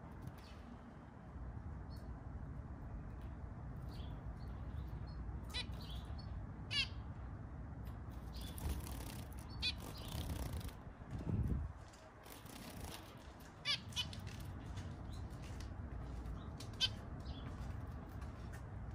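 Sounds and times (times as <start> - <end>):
low background rumble: 0.0 - 18.9
finches giving nasal calls: 8.4 - 10.7
bird wings fluttering: 8.4 - 14.7.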